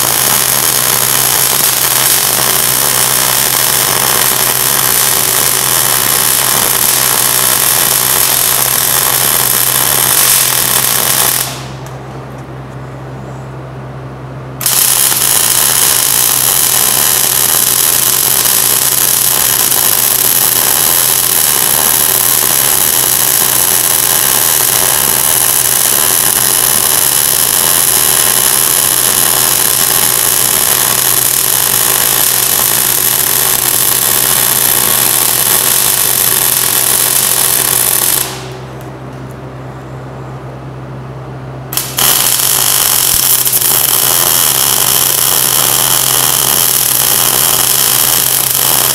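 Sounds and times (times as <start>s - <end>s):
welder arc crackling: 0.0s - 12.0s, 14.6s - 38.9s, 41.7s - 48.9s
low steady hum: 11.4s - 15.2s, 38.2s - 42.0s.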